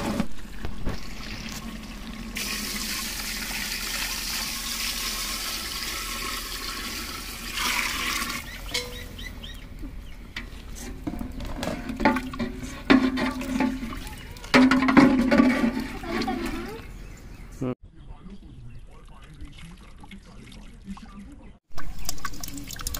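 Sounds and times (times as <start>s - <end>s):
water pouring into a pot: 0.5s - 8.5s, 21.8s - 22.9s
metal ladle knocking against pot: 8.7s - 9.2s.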